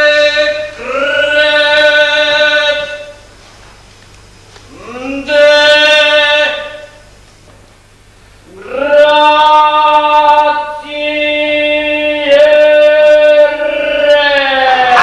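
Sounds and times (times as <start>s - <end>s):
person singing long held notes: 0.0s - 3.2s, 4.7s - 7.0s, 8.5s - 15.0s.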